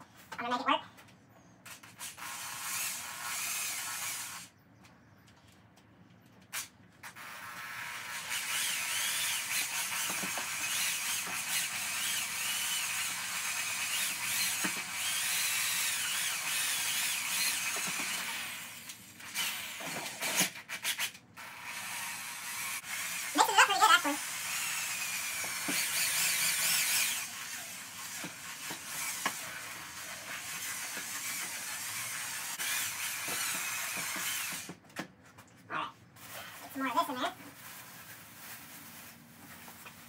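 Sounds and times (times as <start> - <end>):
electric drill mixing resin: 1.7 - 4.5, 7.0 - 34.8.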